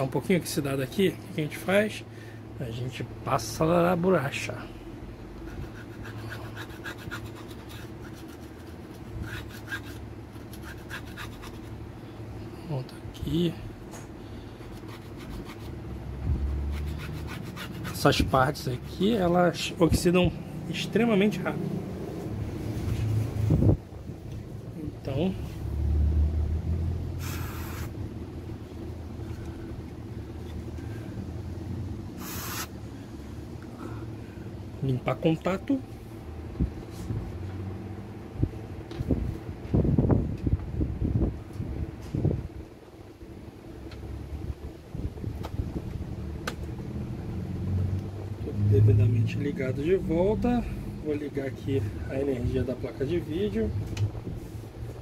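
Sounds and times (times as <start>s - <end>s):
steady low hum: 0.0s - 55.0s
eraser scratching on contacts: 5.4s - 11.8s, 14.6s - 15.8s, 16.4s - 18.4s, 27.2s - 28.0s, 32.2s - 32.7s
aerosol spray hiss: 27.2s - 27.9s, 32.2s - 32.7s.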